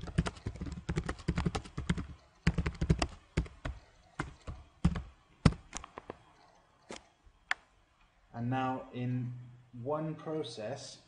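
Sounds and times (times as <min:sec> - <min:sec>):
typing on a computer keyboard: 0:00.0 - 0:06.5.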